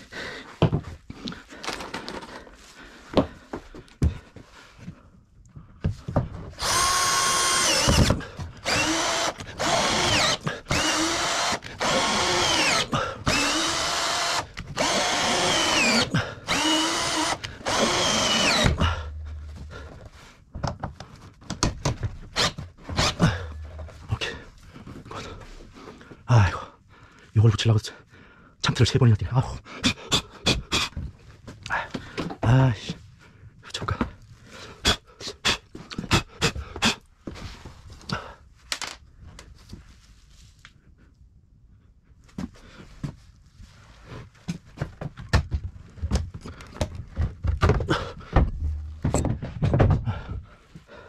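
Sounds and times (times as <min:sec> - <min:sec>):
electric drill bursts: 0:06.6 - 0:19.0
handling knocks and clicks: 0:19.1 - 0:24.1, 0:44.5 - 0:50.1.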